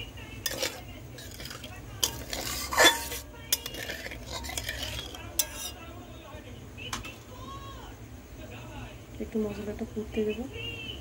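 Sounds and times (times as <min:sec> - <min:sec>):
metal spatula scraping a pan: 0:00.4 - 0:05.9.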